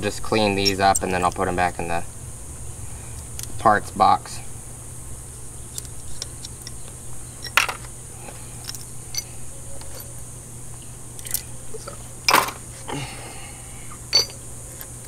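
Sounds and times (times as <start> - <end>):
bolts and hand tool clinking: 0.1 - 1.9, 5.7 - 10.1, 11.2 - 12.7, 14.1 - 15.0.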